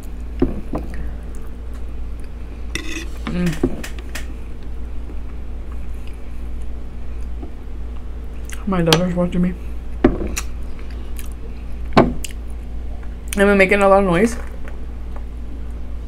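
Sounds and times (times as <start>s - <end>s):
low electrical hum: 0.0s - 16.0s
fork scraping a wooden board: 2.8s - 3.4s
person humming mm: 3.2s - 3.7s.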